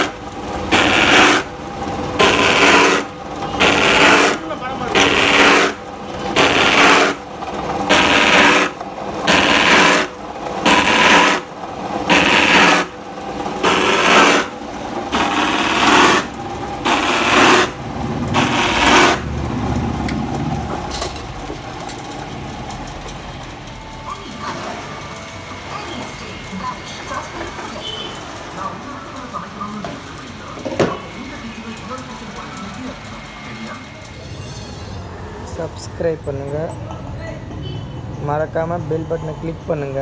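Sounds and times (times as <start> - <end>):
saw rasping through plastic pipe: 0.0 - 1.5, 2.2 - 7.2, 7.9 - 10.1, 12.1 - 13.0, 13.6 - 14.5, 16.9 - 17.8, 18.4 - 19.2
electric motor running: 0.0 - 20.5, 22.6 - 36.7.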